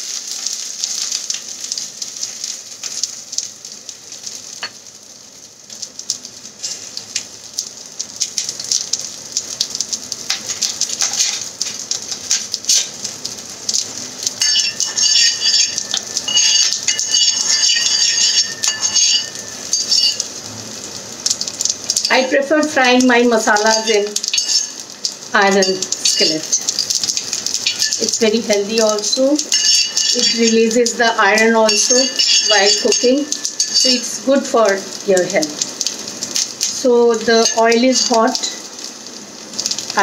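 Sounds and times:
okra sizzling in oil: 0.0s - 40.0s
high squeaky tone: 14.4s - 20.2s.

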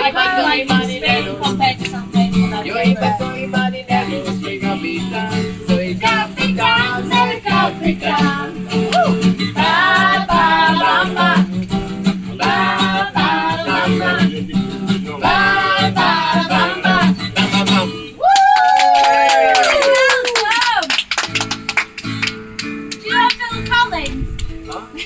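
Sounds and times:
acoustic guitar strumming: 0.0s - 18.2s, 20.7s - 25.0s
person singing: 12.3s - 18.2s.

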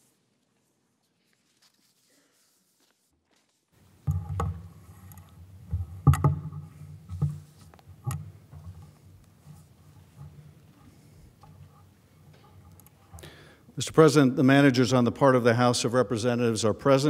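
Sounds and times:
knocks and thumps at lectern: 4.0s - 9.0s.

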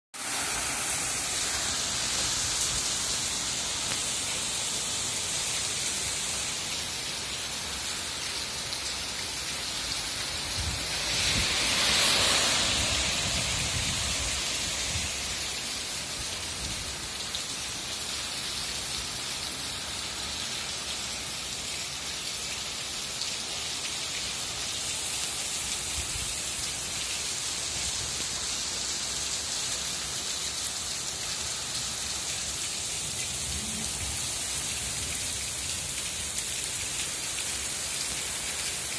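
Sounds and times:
heavy rain on paving: 0.1s - 38.9s.

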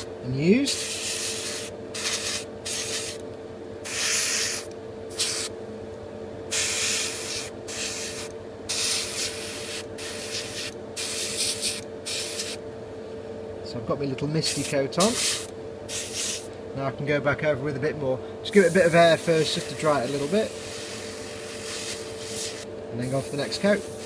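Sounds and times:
steady hum: 0.0s - 24.0s
airbrush spraying hiss: 0.7s - 3.2s, 3.8s - 5.5s, 6.5s - 12.6s, 14.4s - 16.5s, 18.6s - 24.0s.

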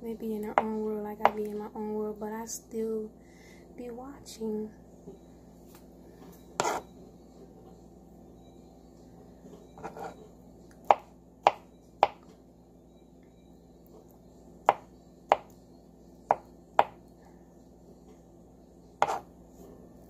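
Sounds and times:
knife chopping on wooden board: 6.6s - 6.8s, 10.9s - 12.2s, 14.7s - 15.5s, 16.3s - 17.0s, 19.0s - 19.3s.

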